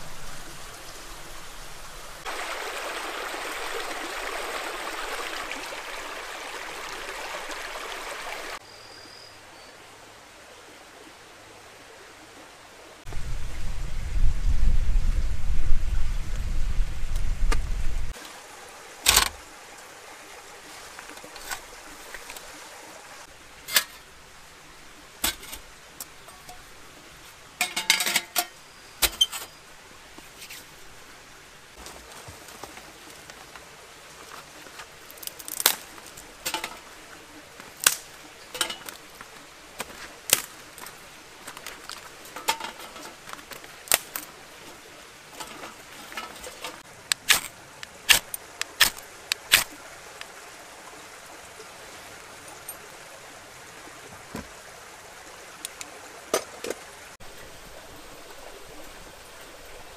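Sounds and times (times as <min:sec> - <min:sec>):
low rumbling noise: 0:13.1 - 0:18.1
metal stove clicks and clinks: 0:27.6 - 0:29.5.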